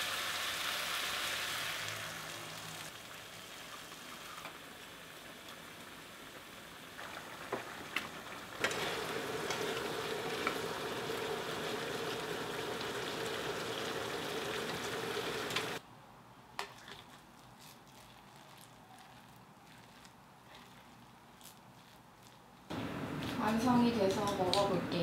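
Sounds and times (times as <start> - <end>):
meat sizzling in a frying pan: 0.0 - 7.8.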